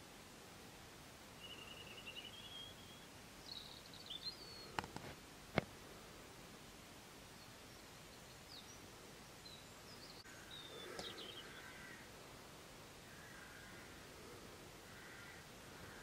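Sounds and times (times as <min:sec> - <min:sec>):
distant birds calling: 0:01.4 - 0:05.8, 0:07.3 - 0:16.0.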